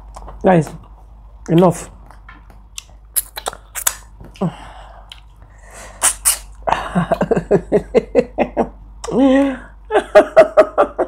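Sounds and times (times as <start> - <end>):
mouth clicks and lip smacks: 0.1 - 4.4, 5.0 - 5.4, 6.0 - 6.6
sharp bursts of breath: 5.6 - 6.5.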